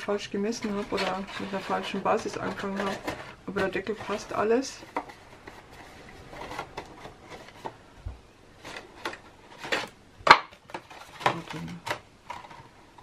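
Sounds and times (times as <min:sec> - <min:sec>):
paper rustling: 0:00.5 - 0:07.8.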